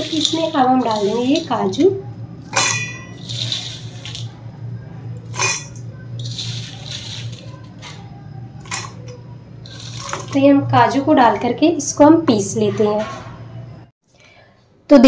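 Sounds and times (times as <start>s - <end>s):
scraping and rustling: 0.0s - 4.5s, 5.3s - 10.4s
nuts clinking into steel jar: 2.5s - 4.3s, 5.2s - 8.0s, 8.6s - 10.4s.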